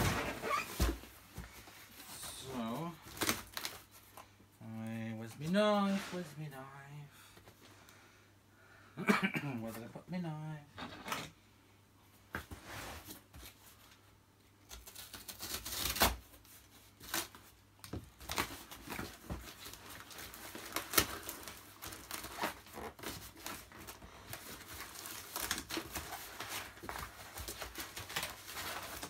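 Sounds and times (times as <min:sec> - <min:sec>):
cardboard and packing paper crinkling: 0:00.0 - 0:04.3, 0:14.7 - 0:29.0.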